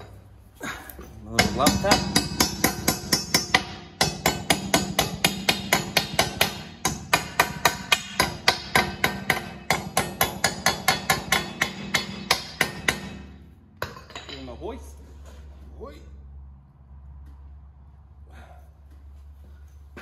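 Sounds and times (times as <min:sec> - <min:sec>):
hammer tapping on steel: 0:01.4 - 0:14.4.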